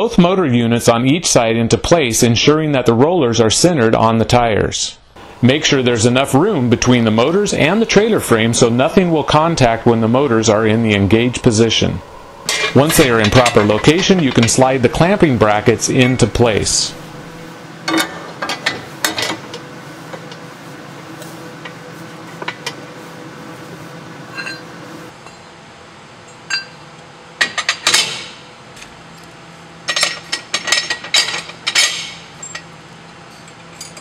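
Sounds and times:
metal brackets clinking and scraping: 0:12.4 - 0:16.9, 0:24.3 - 0:25.5, 0:29.8 - 0:34.0.

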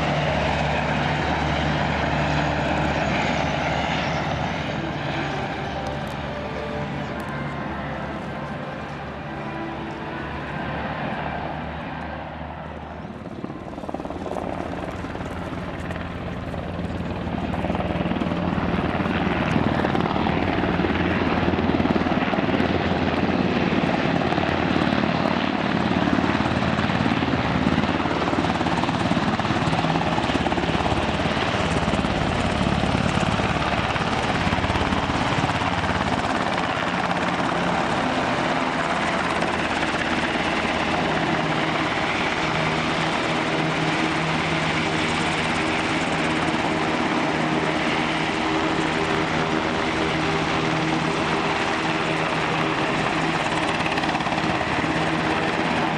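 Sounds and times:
helicopter rotor and turbine: 0:00.0 - 0:55.9.

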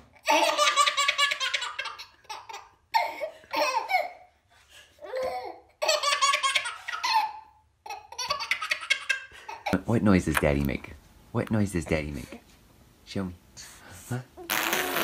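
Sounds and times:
baby laughing: 0:00.2 - 0:04.3, 0:05.0 - 0:09.8.

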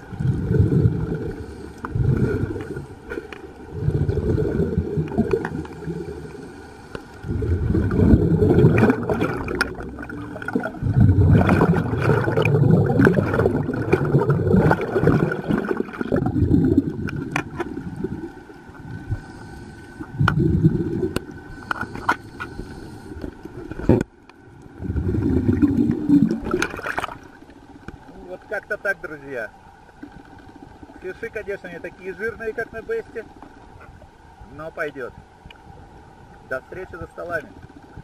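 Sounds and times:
muffled underwater bubbling: 0:00.0 - 0:29.0.

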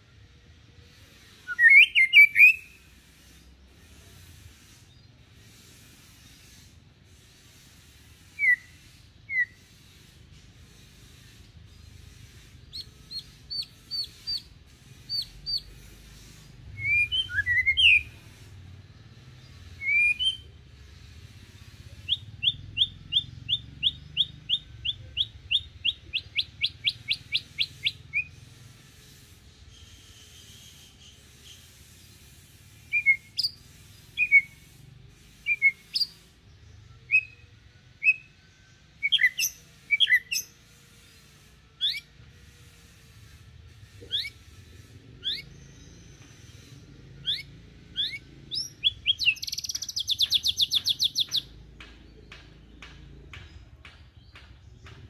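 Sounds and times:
songbird whistling: 0:01.4 - 0:02.9, 0:08.3 - 0:09.7, 0:12.6 - 0:14.5, 0:15.1 - 0:15.7, 0:16.8 - 0:18.4, 0:19.7 - 0:20.6, 0:22.0 - 0:28.4, 0:32.8 - 0:34.8, 0:35.4 - 0:36.2, 0:36.9 - 0:37.4, 0:38.0 - 0:38.4, 0:39.0 - 0:40.6, 0:41.8 - 0:42.1, 0:44.1 - 0:44.4, 0:45.2 - 0:51.6.

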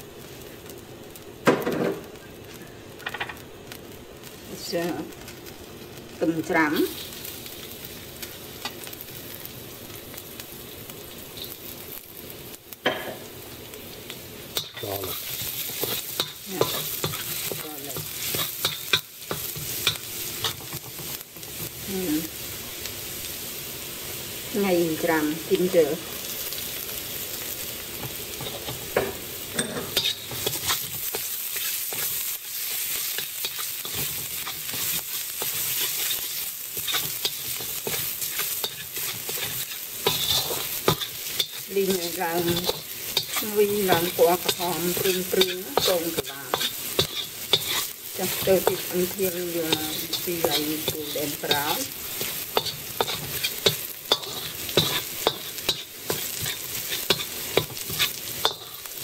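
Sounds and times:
garlic sizzling in hot oil: 0:00.0 - 0:59.0
metal spatula scraping a wok: 0:14.6 - 0:21.2, 0:29.6 - 0:59.0.

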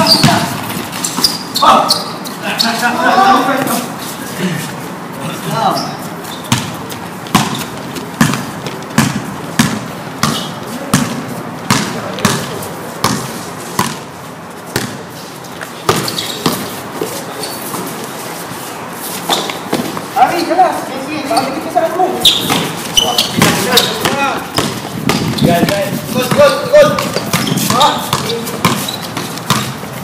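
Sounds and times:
basketball bouncing on concrete: 0:00.0 - 0:01.3, 0:06.5 - 0:14.1, 0:14.7 - 0:15.1, 0:15.8 - 0:16.7, 0:22.4 - 0:30.0
players' voices: 0:00.0 - 0:13.8, 0:15.8 - 0:29.8.

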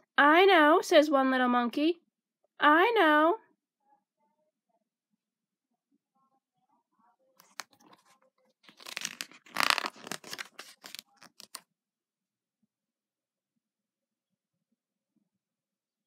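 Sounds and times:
book pages turning: 0:07.4 - 0:11.6
paper snaps: 0:08.7 - 0:11.6.

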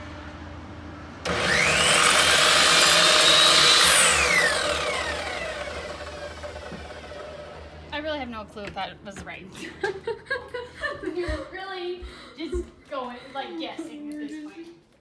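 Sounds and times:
saw blade cutting wood: 0:01.2 - 0:07.7
miter saw motor whine: 0:01.2 - 0:07.9.

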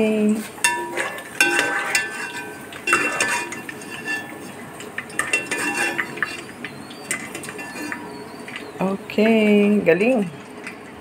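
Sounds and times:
metal strainer clinking against pot: 0:00.6 - 0:08.2.

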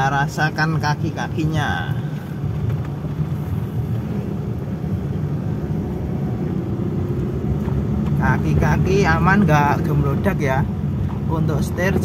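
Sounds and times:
car engine hum from cabin: 0:00.0 - 0:12.0
road and tyre noise: 0:00.0 - 0:12.0.

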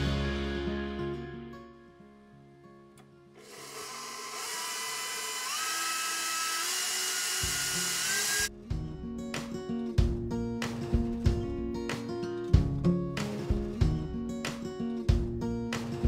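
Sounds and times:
guitar music: 0:00.0 - 0:03.4, 0:08.5 - 0:16.0
stand mixer motor whine: 0:03.4 - 0:08.5.

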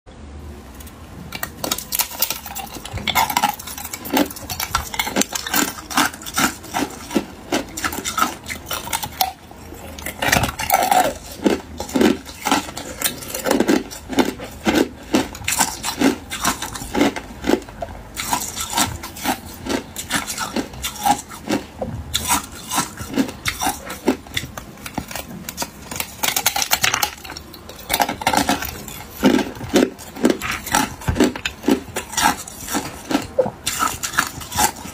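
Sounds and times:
ice cubes being crunched: 0:01.3 - 0:09.4, 0:10.0 - 0:21.6, 0:22.2 - 0:34.9.

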